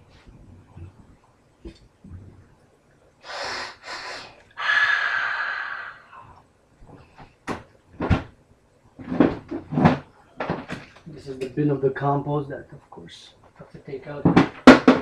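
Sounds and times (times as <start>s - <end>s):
person breathing loudly: 3.2s - 6.4s
sharp knocks: 14.2s - 15.0s.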